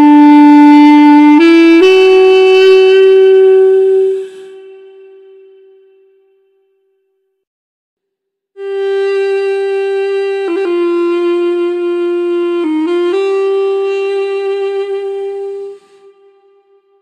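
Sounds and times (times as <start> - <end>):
reedy wind instrument long notes: 0.0 - 6.4, 8.6 - 17.0.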